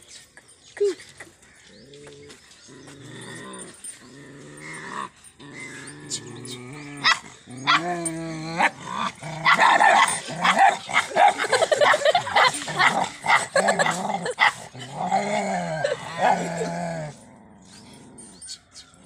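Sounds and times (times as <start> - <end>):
dogs growling: 1.8 - 18.5
dogs barking: 7.0 - 7.9, 9.4 - 14.7.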